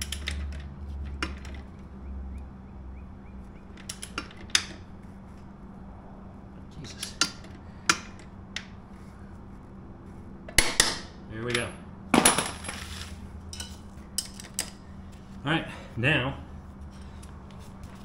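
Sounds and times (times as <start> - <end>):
metal tools clattering: 11.6 - 14.7.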